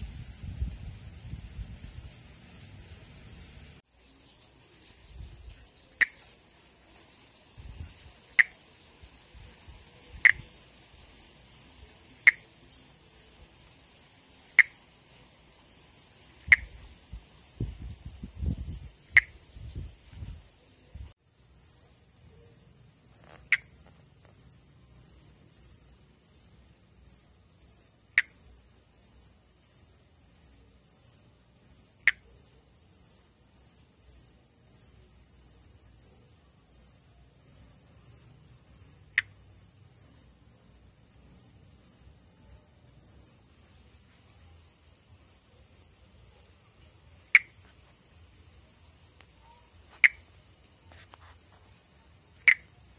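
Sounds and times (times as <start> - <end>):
insect chirping: 0.0 - 52.9
insects droning: 0.0 - 52.9
tree frog calling: 5.9 - 7.0, 8.2 - 8.8, 9.8 - 17.4, 18.2 - 19.6, 21.7 - 30.0, 31.6 - 43.9, 46.2 - 48.2, 49.1 - 52.9.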